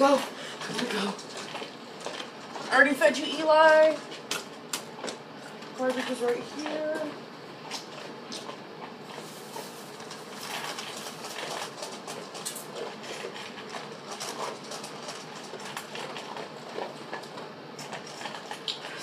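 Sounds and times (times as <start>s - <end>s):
bag rustling and crinkling: 7.6s - 17.3s.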